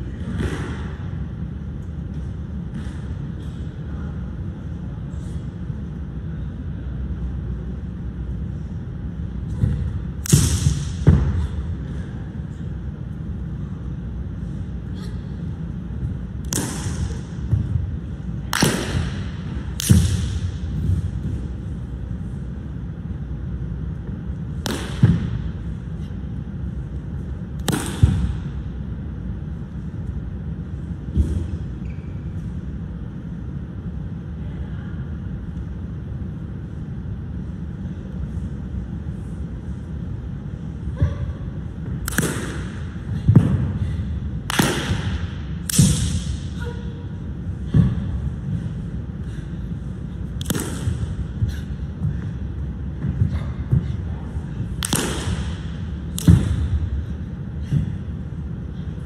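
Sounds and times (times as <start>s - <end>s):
low background hum: 0.0s - 59.0s
sharp slaps of hand strikes: 16.4s - 17.0s, 44.5s - 46.3s, 50.4s - 50.9s, 54.8s - 56.6s.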